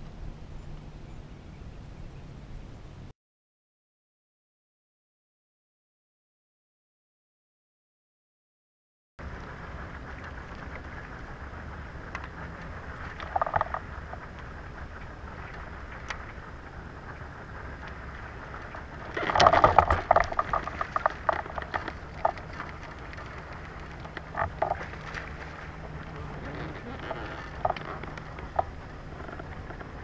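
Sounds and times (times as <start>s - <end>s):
water and wind noise: 0.0s - 3.1s, 9.2s - 30.0s
kayak gear knocking and clattering: 13.0s - 14.4s, 18.8s - 30.0s.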